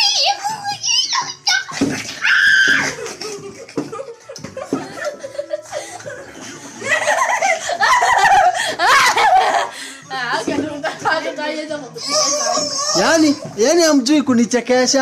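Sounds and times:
children laughing: 0.0s - 9.9s.

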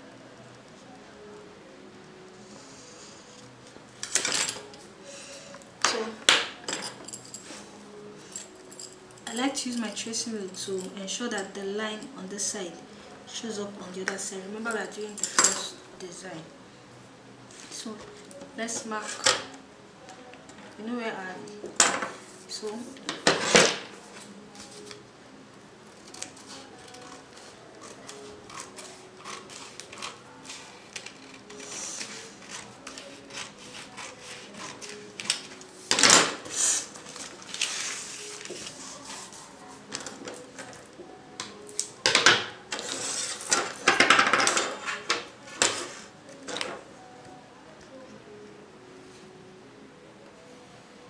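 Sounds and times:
faint background music: 0.0s - 51.0s
scissors cutting paper: 26.0s - 39.4s
paper rustling: 26.0s - 40.6s.

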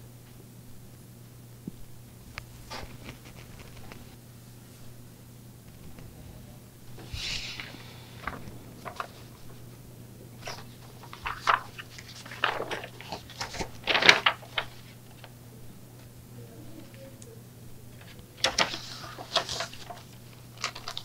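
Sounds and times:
low steady hum: 0.0s - 21.0s
paper rustling and crinkling: 2.6s - 4.2s, 7.0s - 9.8s, 10.4s - 15.4s, 17.9s - 21.0s.

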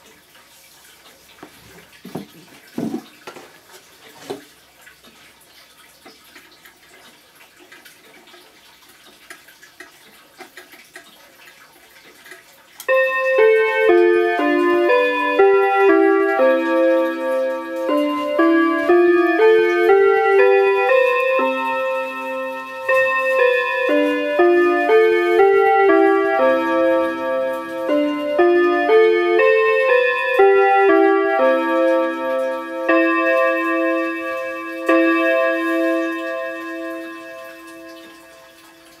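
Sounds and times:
clock chime melody: 12.9s - 39.0s
low repeated bell note: 12.9s - 39.0s.

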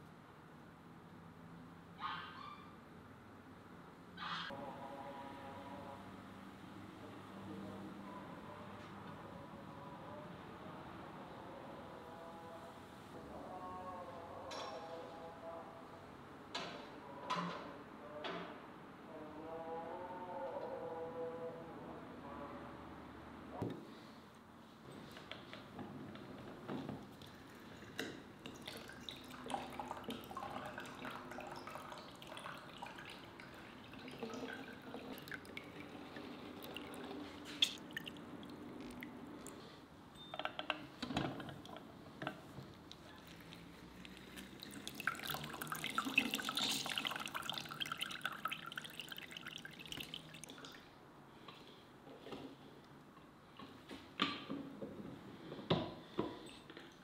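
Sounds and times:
juice dripping into plastic jug: 28.4s - 39.6s, 42.8s - 50.8s.

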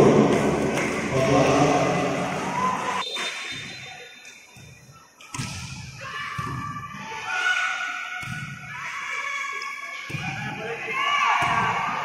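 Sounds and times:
volleyball hit with sharp thud: 5.3s - 6.8s, 11.3s - 11.9s.

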